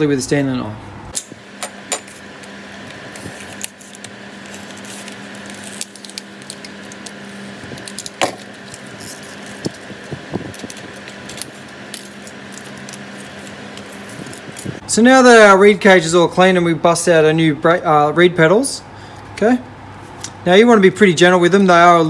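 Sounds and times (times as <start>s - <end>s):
steady background hum: 0.0s - 22.0s
plastic packet crinkling: 2.8s - 14.8s
utility knife cutting plastic: 2.9s - 14.8s.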